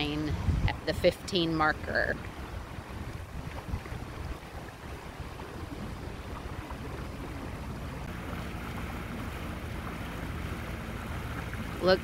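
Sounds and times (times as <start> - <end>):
boat engine droning: 0.0 - 12.0
wind: 0.0 - 12.0.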